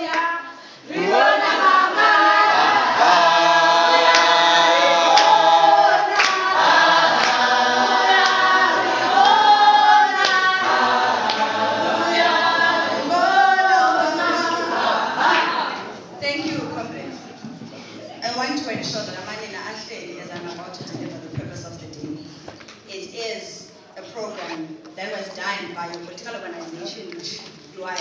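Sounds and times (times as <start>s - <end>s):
group singing unaccompanied: 0.0s - 16.2s.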